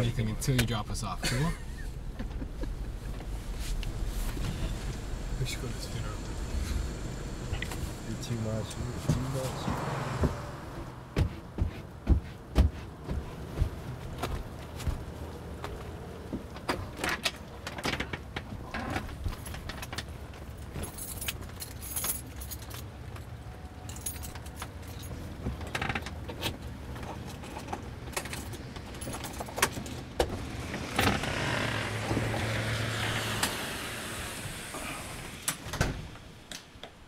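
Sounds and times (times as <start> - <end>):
steady rush of noise: 0.0 - 11.2
keys jangling against a lock: 20.8 - 22.9, 23.8 - 25.2.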